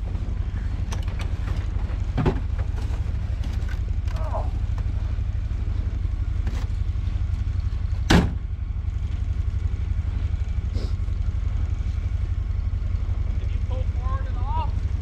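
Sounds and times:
vehicle engine idling: 0.0 - 15.0
loud clunk: 8.0 - 8.4.

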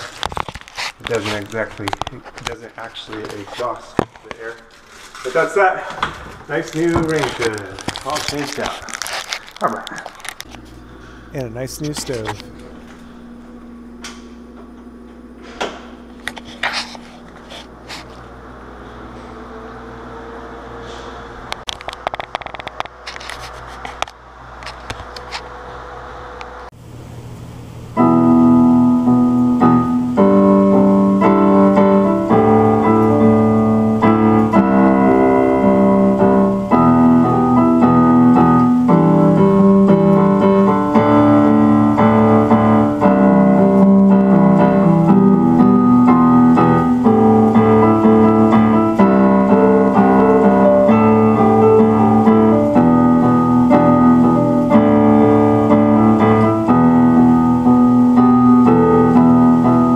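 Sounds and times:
electric keyboard piano chords: 5.4 - 23.0, 25.4 - 59.9.

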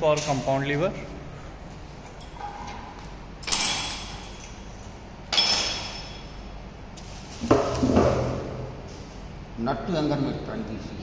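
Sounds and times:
sharp ringing clink: 3.4 - 6.4.

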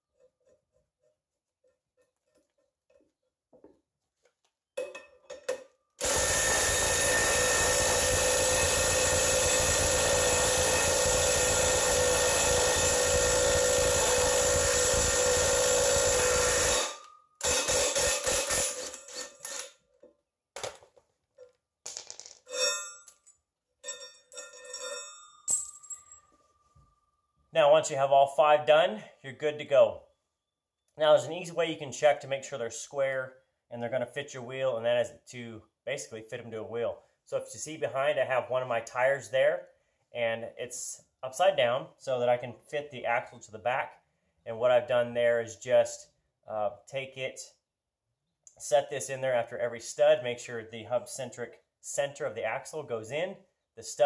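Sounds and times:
impact wrench hammering: 4.8 - 19.8.

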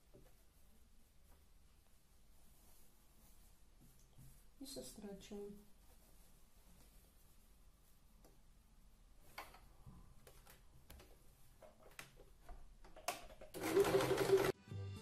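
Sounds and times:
sewing machine stitching: 13.5 - 14.6.

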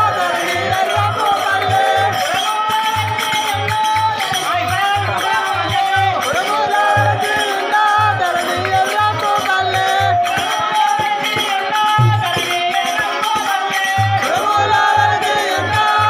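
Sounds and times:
low drum beat: 12.0 - 12.5.

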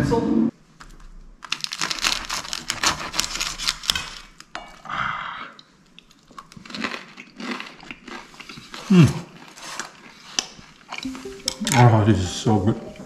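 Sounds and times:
knife sawing through crunchy food: 1.7 - 4.3.

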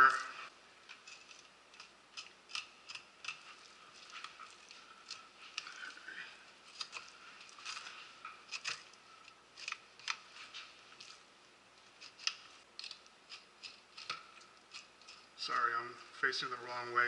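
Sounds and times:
knife clicking and scraping on bone: 0.8 - 6.0, 6.7 - 10.2, 12.0 - 15.3.

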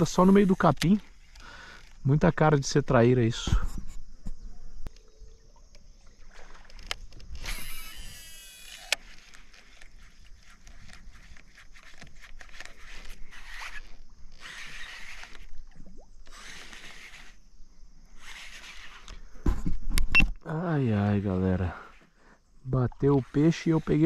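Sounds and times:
fishing reel winding: 0.0 - 2.0, 6.8 - 15.5, 16.2 - 17.4, 18.2 - 19.2
reel clicks: 0.0 - 2.2, 6.6 - 17.5, 18.1 - 19.3
fishing line running off spool: 4.9 - 19.4.

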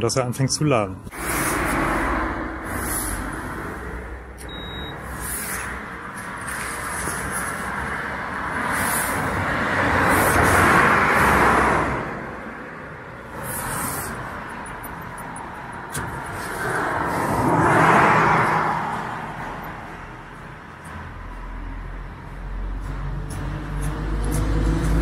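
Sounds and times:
cars passing: 1.0 - 25.0.

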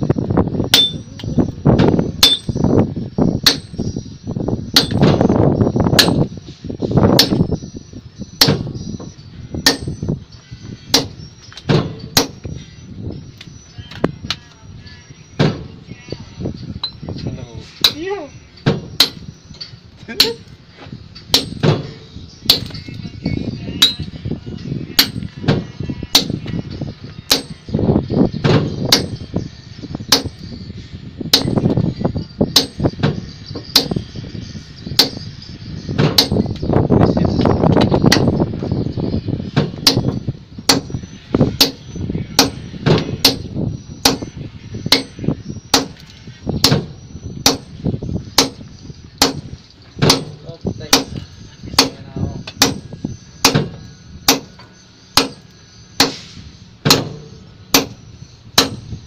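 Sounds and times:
sledgehammers striking steel chisel: 0.6 - 2.8, 3.4 - 4.1, 4.7 - 7.6, 8.4 - 8.9, 9.5 - 10.2, 10.9 - 12.6, 17.8 - 20.6, 21.2 - 23.0, 23.8 - 24.2, 25.0 - 26.6, 27.3 - 27.8, 28.4 - 30.6, 31.3 - 31.8, 32.5 - 34.2, 34.8 - 38.5, 39.5 - 59.0.

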